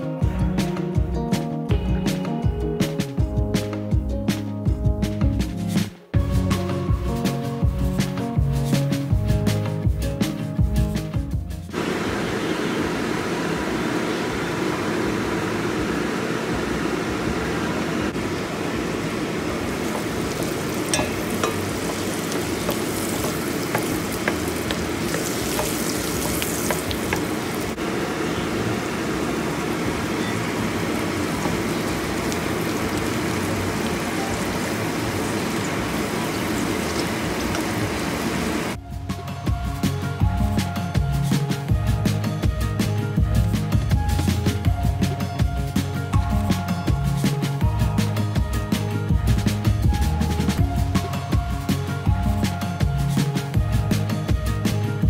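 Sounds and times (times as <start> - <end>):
frying in oil sizzle: 18.2 - 38.8.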